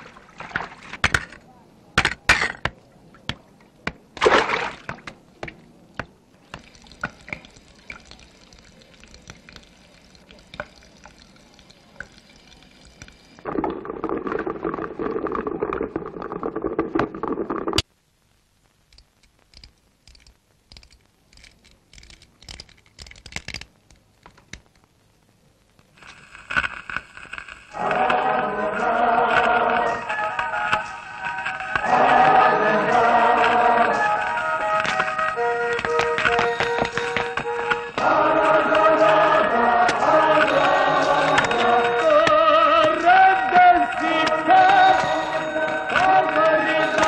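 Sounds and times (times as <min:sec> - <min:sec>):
running water hissing: 0:06.5 - 0:17.8
water gushing: 0:06.6 - 0:17.8
small clicks and taps: 0:18.6 - 0:24.9.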